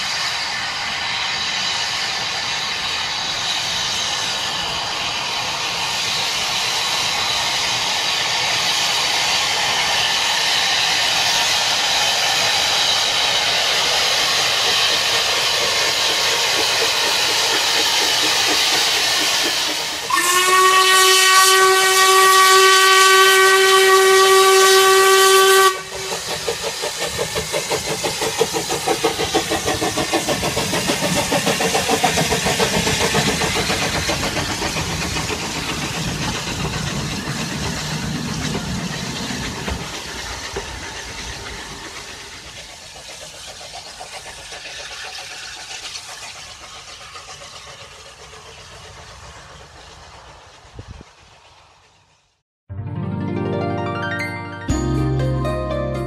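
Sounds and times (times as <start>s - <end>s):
steam locomotive hissing: 0.0s - 52.4s
train wheels clattering: 5.7s - 22.0s, 24.0s - 52.2s
steam whistle blast: 20.0s - 26.3s.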